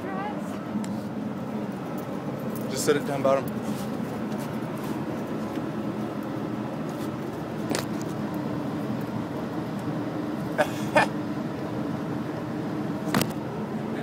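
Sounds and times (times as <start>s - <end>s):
low city hum: 0.0s - 14.0s.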